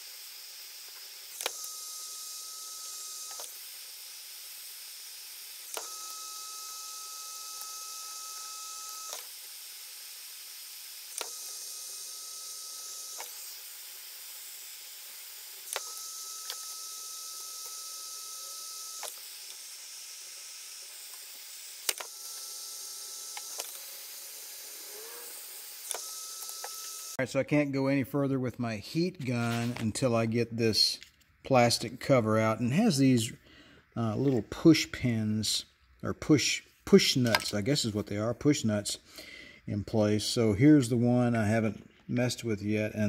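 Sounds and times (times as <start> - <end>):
heat gun blowing: 0.0 - 27.2.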